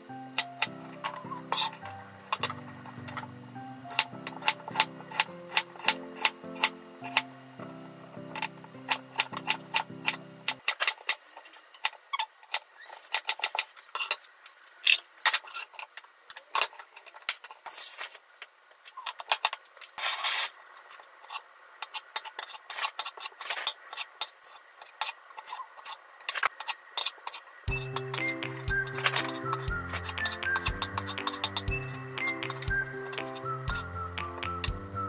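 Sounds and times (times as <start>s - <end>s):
background music: 0.0s - 10.6s, 27.7s - 35.0s.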